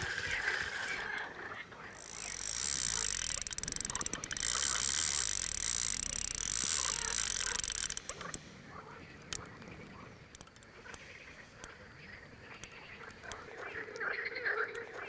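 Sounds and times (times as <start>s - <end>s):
fishing reel ratcheting buzz: 0.0s - 1.3s, 1.9s - 8.4s
sharp reel clicks: 0.0s - 11.8s, 12.4s - 15.0s.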